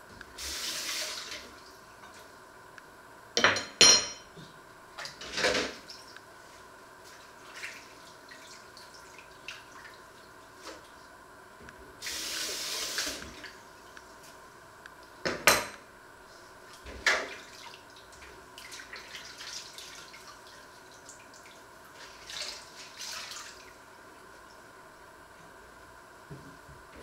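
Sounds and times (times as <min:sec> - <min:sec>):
dishes knocking and clinking: 0:03.4 - 0:04.3, 0:15.3 - 0:15.8
water splashes: 0:18.6 - 0:23.7.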